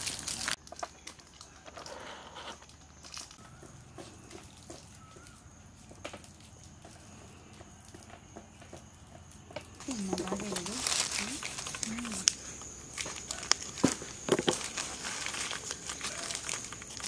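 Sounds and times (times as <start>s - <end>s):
wrapper crinkling and rustling: 0.0s - 1.9s, 2.7s - 3.5s, 9.8s - 17.0s
faint crackles: 0.0s - 17.0s.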